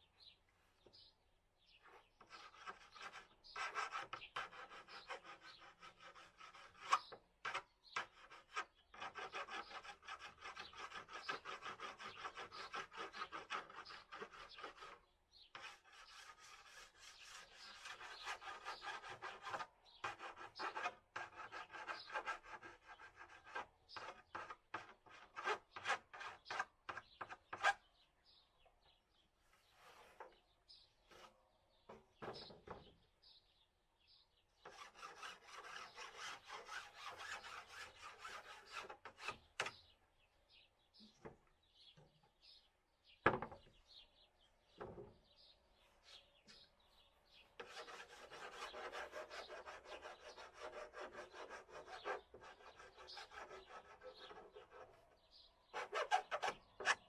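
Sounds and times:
hand file rasping on panel edge: 0:01.8 - 0:27.8, 0:34.6 - 0:39.8, 0:47.6 - 0:57.0.

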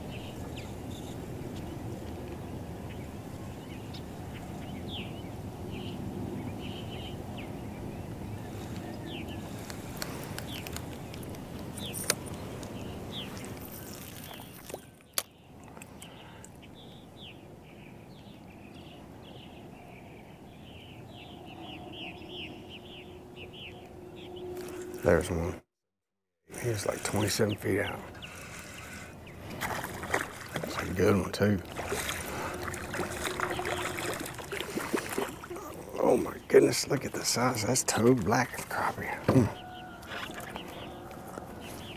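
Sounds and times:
high bird chirps: 0:32.0 - 0:35.8.

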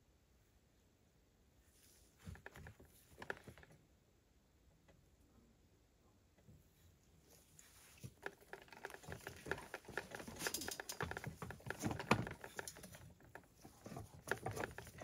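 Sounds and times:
small clicks and creaks of screw: 0:07.6 - 0:15.0.

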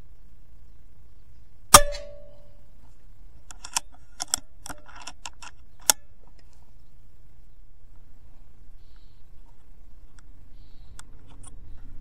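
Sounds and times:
air rifle shot: 0:01.7 - 0:02.4.

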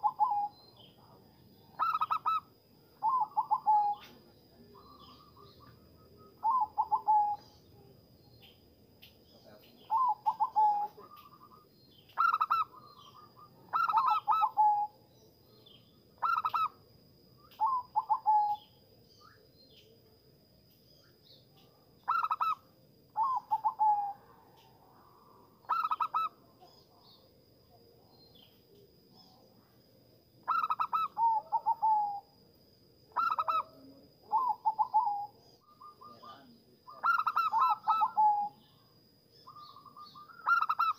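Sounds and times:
dove cooing: 0:00.0 - 0:07.6, 0:09.8 - 0:15.0, 0:16.2 - 0:16.8, 0:17.6 - 0:18.7, 0:22.1 - 0:27.1, 0:30.4 - 0:32.3, 0:33.1 - 0:38.7, 0:39.5 - 0:40.9
faint steady high tone: 0:00.0 - 0:16.2.

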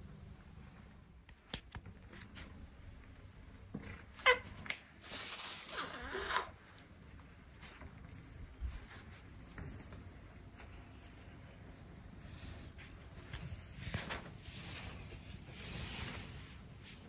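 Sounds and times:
cat hissing: 0:04.2 - 0:06.6.

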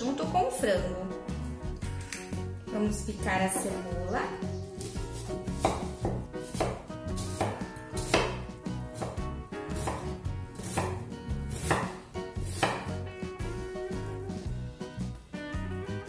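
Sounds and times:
knife cutting onion on wooden board: 0:04.8 - 0:13.6.

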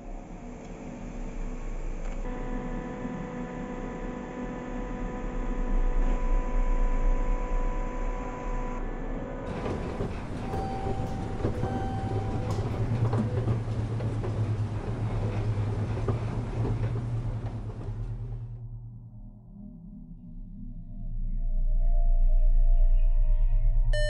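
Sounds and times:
deep hum: 0:18.4 - 0:24.0.

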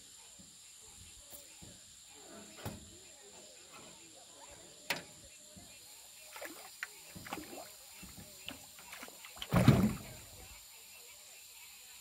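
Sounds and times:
fish splashing: 0:06.2 - 0:10.4
knocks and rattles on boat: 0:09.4 - 0:10.2.

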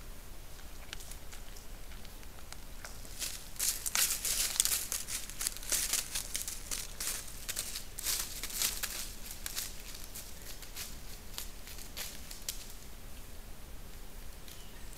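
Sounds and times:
deer crunching acorns: 0:00.8 - 0:12.7
rustling in dry leaves: 0:02.8 - 0:13.0.

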